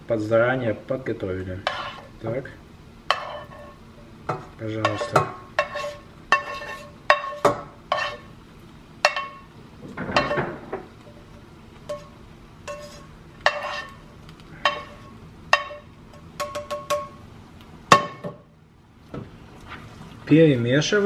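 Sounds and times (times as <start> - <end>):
spoon scraping a pan: 1.6 - 2.2, 3.1 - 8.3, 9.0 - 9.5, 11.9 - 17.0
pan and pot clinking: 3.1 - 8.3, 9.0 - 11.3, 11.9 - 14.0, 14.6 - 17.2.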